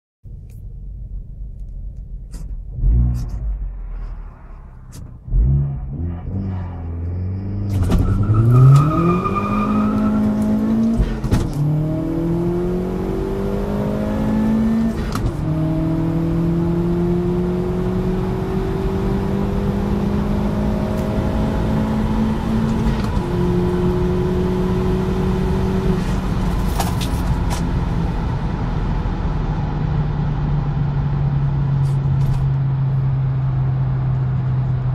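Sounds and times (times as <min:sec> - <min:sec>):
car engine accelerating: 0:02.3 - 0:34.9.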